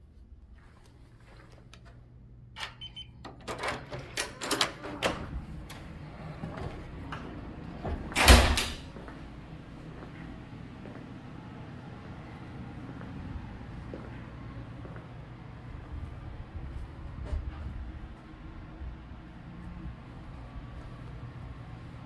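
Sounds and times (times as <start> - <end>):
keycard lock beeping: 2.6 - 4.9.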